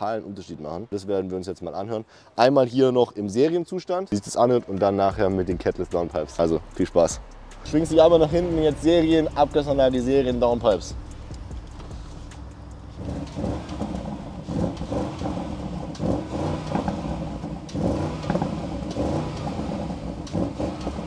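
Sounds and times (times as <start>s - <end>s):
car engine idling and revving: 5.1s - 21.0s.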